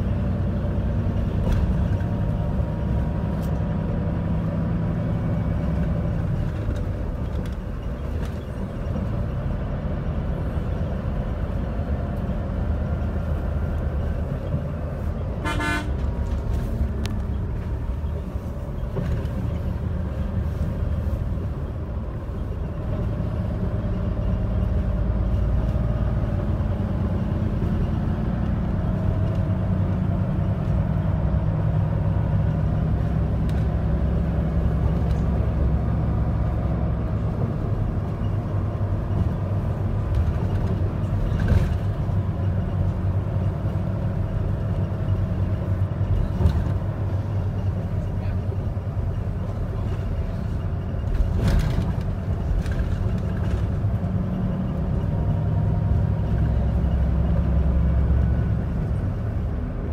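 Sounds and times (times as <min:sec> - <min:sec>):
bus engine rumble: 0:00.0 - 0:59.9.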